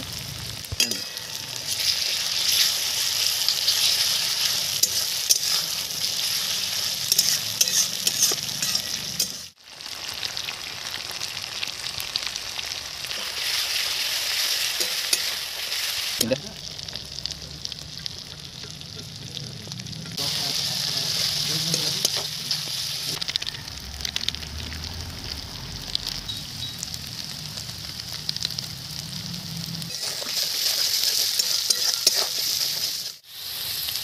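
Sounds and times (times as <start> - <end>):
vegetables sizzling in hot oil: 0.0 - 34.0
metal spatula scraping a wok: 0.8 - 9.5, 13.2 - 16.2, 29.9 - 33.2.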